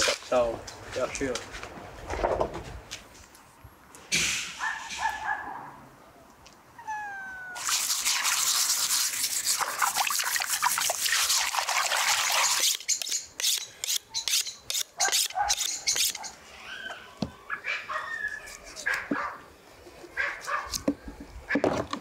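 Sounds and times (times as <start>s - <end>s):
cat meowing: 6.8s - 7.7s
knife on sharpening rod: 12.6s - 16.2s.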